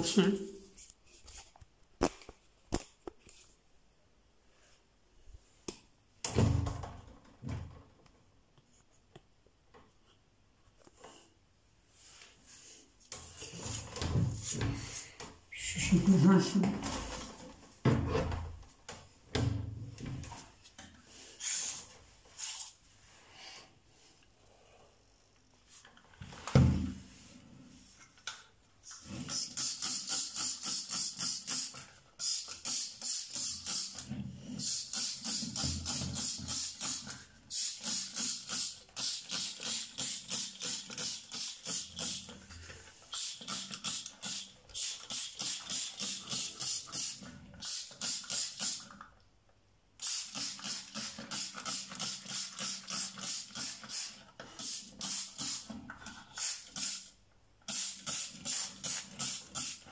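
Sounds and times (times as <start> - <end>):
spray bottle hissing squirts: 29.3 - 34.0, 34.6 - 42.3, 43.0 - 48.9, 50.0 - 55.7, 56.3 - 57.1, 57.7 - 59.8.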